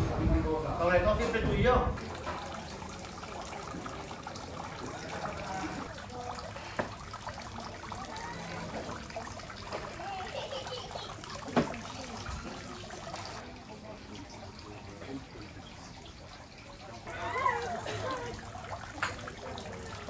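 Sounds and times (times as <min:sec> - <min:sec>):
stone fountain trickling: 0:00.5 - 0:20.0.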